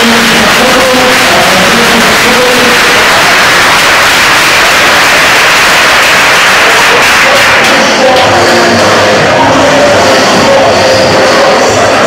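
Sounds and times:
distorted noise: 0.0s - 12.0s
faint music: 6.6s - 12.0s.

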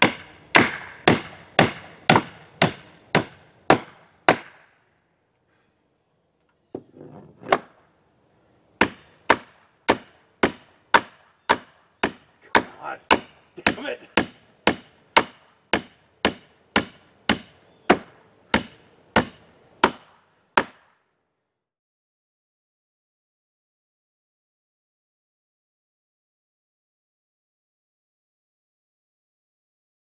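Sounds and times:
hammer striking nails: 0.0s - 4.7s, 8.8s - 20.9s.

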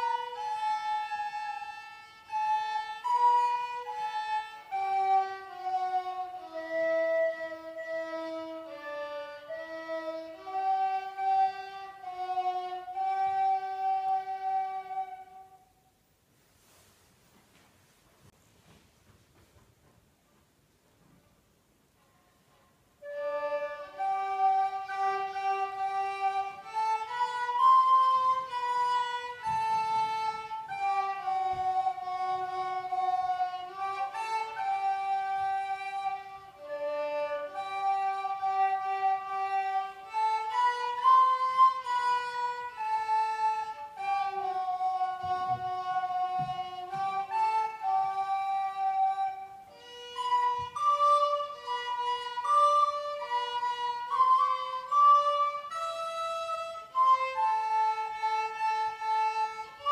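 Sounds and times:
recorder and violin duet: 0.0s - 15.8s, 21.8s - 59.9s.

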